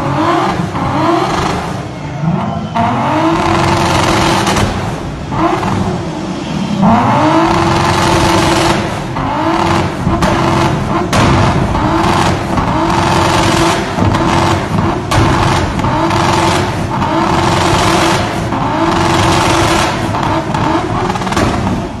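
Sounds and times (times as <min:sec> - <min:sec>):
car engine revving hard: 0:00.0 - 0:22.0
sharp cracks: 0:07.8 - 0:22.0.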